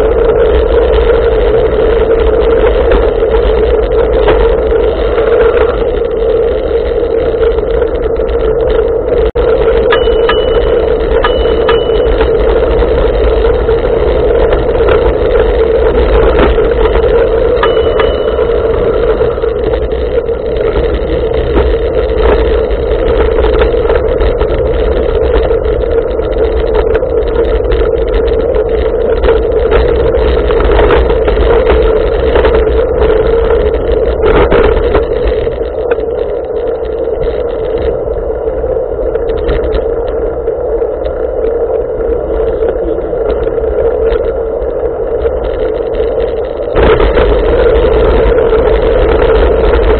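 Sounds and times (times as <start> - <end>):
bicycle tyre rumble on pavement: 0.0 - 49.9.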